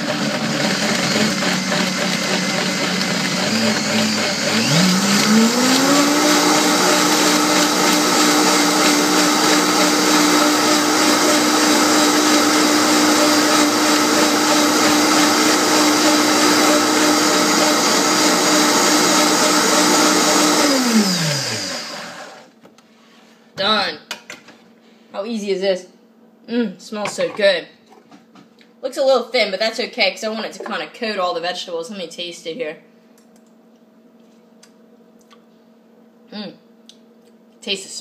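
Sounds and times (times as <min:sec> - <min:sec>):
blender motor whining: 0:00.0 - 0:22.5.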